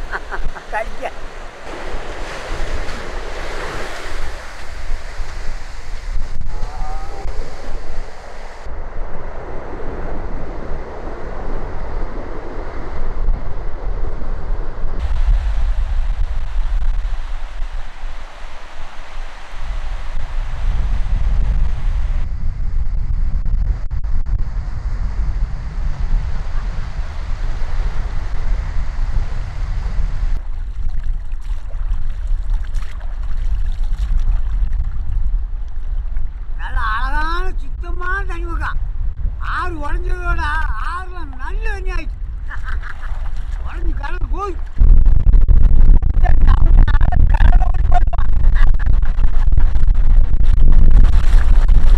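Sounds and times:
sea water washing: 0:00.0 - 0:08.7, 0:30.4 - 0:36.0, 0:42.6 - 0:44.8
wind buffeting microphone: 0:00.0 - 0:51.9.

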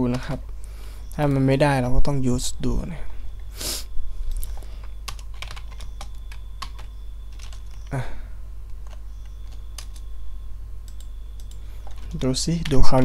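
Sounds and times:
low hum: 0:00.0 - 0:13.0
typing on a keyboard: 0:05.1 - 0:07.9, 0:08.8 - 0:10.1, 0:10.9 - 0:12.9.

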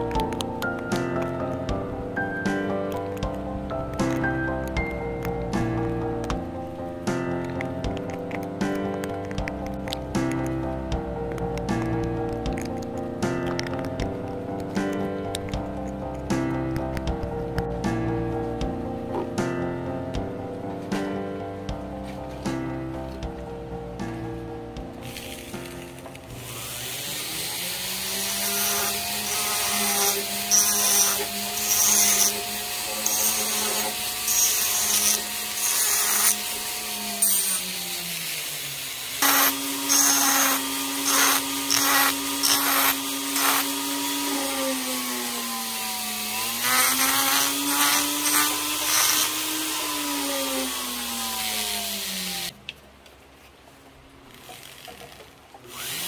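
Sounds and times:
burr rasping wood: 0:00.0 - 0:20.3, 0:24.8 - 0:52.5
rotary tool motor whine: 0:25.0 - 0:52.5, 0:54.3 - 0:56.0.

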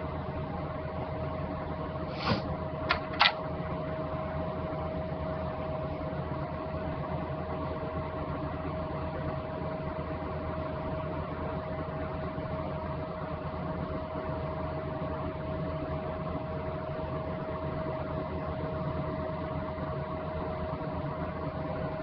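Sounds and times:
electrical hum and fan noise: 0:00.0 - 0:22.0
short clicks: 0:02.3 - 0:03.4.

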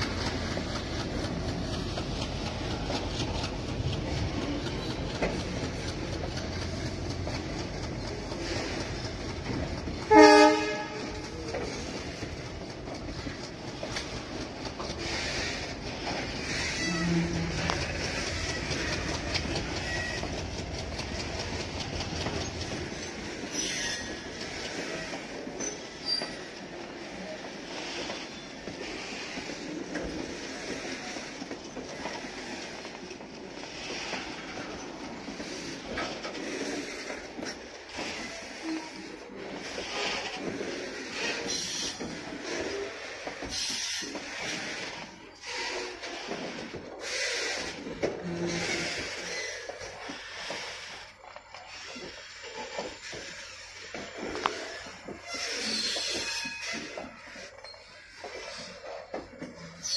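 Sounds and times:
freight wagons rumbling past: 0:00.0 - 0:59.8
wheel clicks over rail joints: 0:00.0 - 0:59.9
train horn blast: 0:10.1 - 0:11.3.

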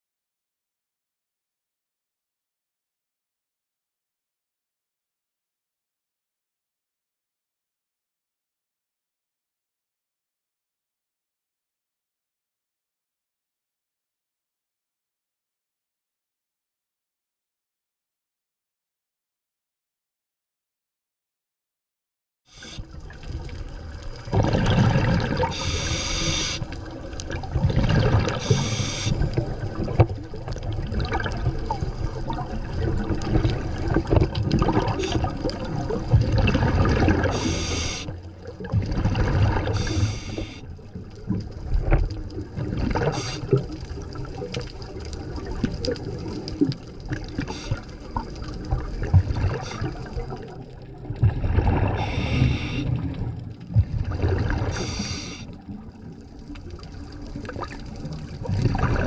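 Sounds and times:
underwater rumble of moving water: 0:22.5 - 0:59.0
diver exhaling bubbles: 0:23.8 - 0:40.6, 0:41.6 - 0:55.9, 0:57.0 - 0:59.0.

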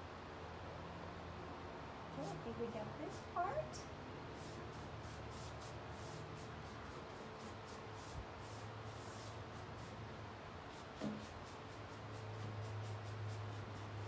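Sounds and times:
paintbrush swishing on wood: 0:02.2 - 0:03.5, 0:04.3 - 0:10.0, 0:10.7 - 0:14.0.

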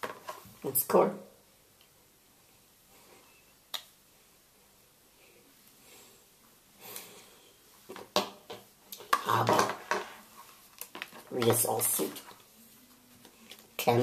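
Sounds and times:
cable handling noise: 0:07.9 - 0:12.5.

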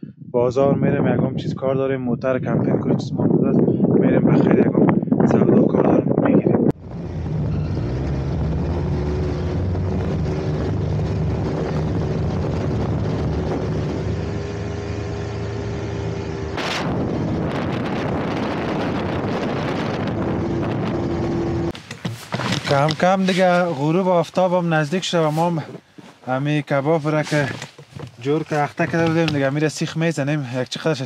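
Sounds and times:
snowmobile engine running: 0:06.8 - 0:21.7.

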